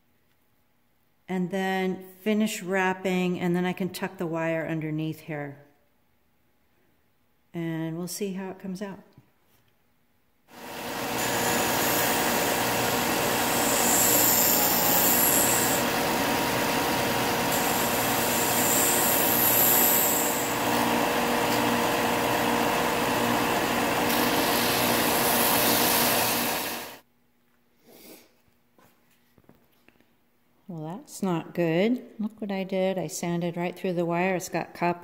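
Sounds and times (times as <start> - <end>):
belt and disc sander running: 10.5 - 27.0
hissing grind of sanding: 10.7 - 15.9, 17.3 - 20.5.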